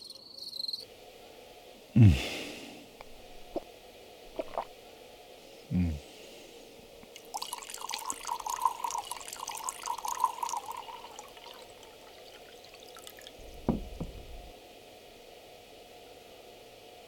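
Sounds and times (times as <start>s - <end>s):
wine pouring into a cup: 7.1s - 14.5s
short low thump: 13.4s - 14.5s.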